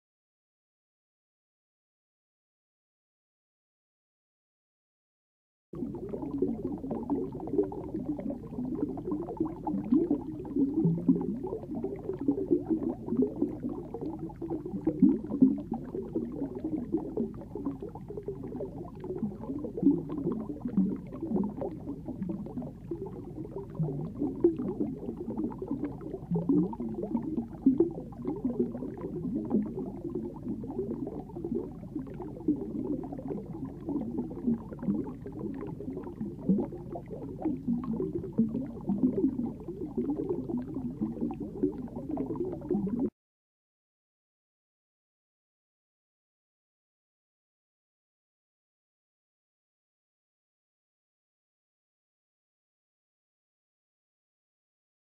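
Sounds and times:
underwater bubbling and gurgling: 0:05.8 - 0:43.1.

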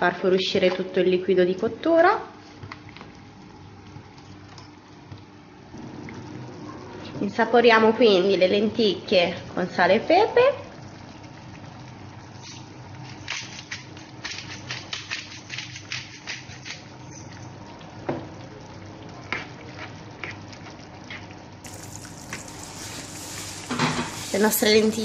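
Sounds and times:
low steady hum: 0:21.5 - 0:25.0
lentils simmering in a pan: 0:21.6 - 0:25.0
spatula stirring a pan: 0:21.7 - 0:25.0.

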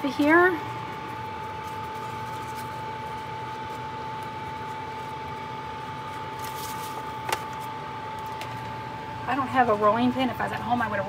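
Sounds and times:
oven hum with high whine: 0:00.0 - 0:11.0
parchment paper crinkling: 0:00.2 - 0:08.6.

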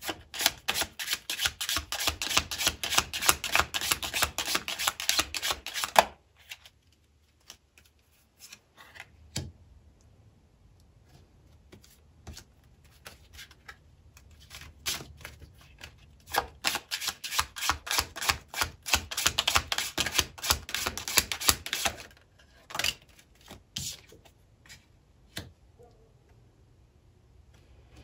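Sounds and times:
cards being shuffled: 0:11.7 - 0:24.8.

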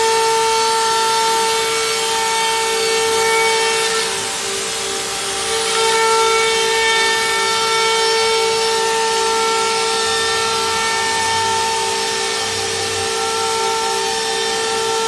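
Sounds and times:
router spindles whining: 0:00.0 - 0:15.0.

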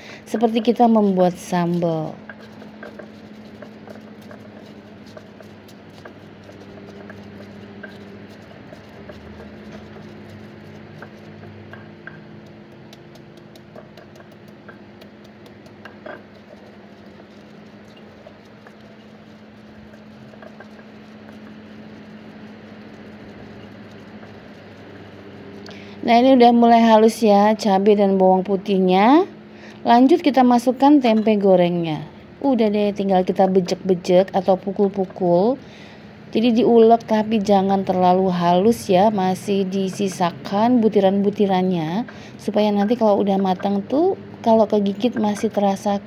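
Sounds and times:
stone pestle grinding on mortar: 0:00.2 - 0:27.0, 0:33.3 - 0:35.5, 0:36.4 - 0:41.8.

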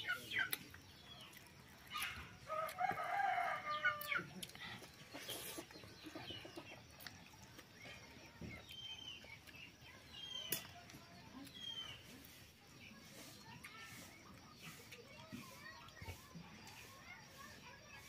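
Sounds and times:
rooster crowing: 0:02.5 - 0:04.3.

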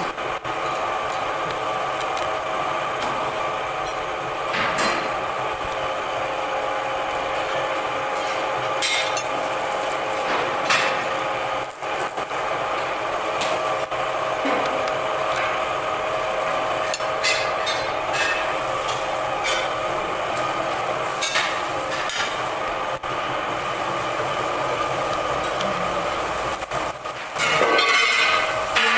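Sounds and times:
machine hum: 0:00.0 - 0:28.9.

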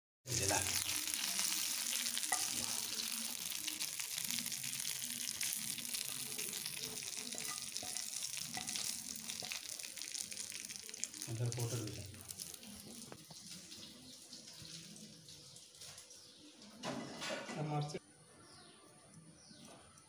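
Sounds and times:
oil sizzling and crackling: 0:00.2 - 0:17.1.

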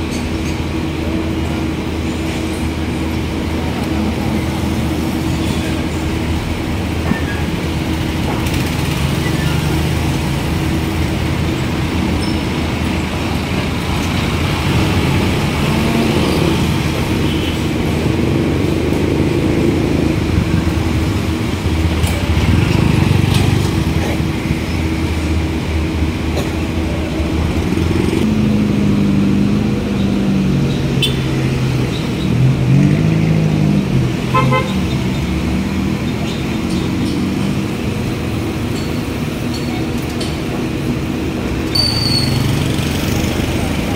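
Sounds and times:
passing vehicle engines: 0:00.0 - 0:43.9.

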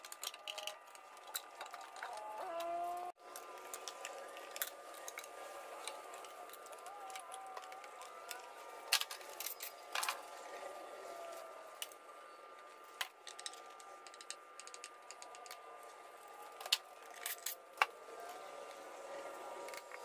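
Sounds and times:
plastic and metal parts clicking: 0:00.0 - 0:10.3, 0:12.9 - 0:15.8, 0:16.4 - 0:18.0.

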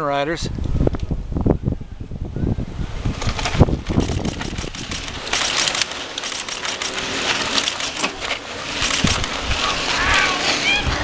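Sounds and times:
bike clicks and rattles: 0:03.1 - 0:09.9
bike tyres crunching over gravel: 0:03.1 - 0:11.0.

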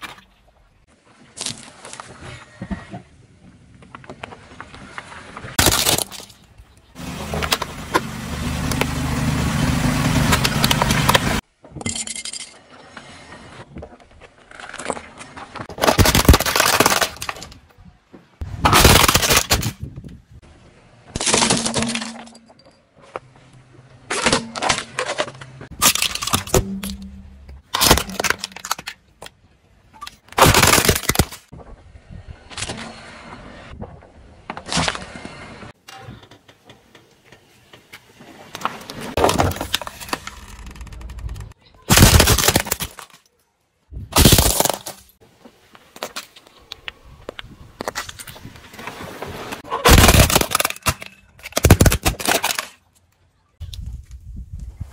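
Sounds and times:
plastic toy cars crunching: 0:04.6 - 0:09.1, 0:10.0 - 0:11.4, 0:13.9 - 0:17.8, 0:18.4 - 0:20.2, 0:21.0 - 0:22.6, 0:24.0 - 0:31.6, 0:38.5 - 0:43.5, 0:44.1 - 0:45.2, 0:45.9 - 0:54.2.

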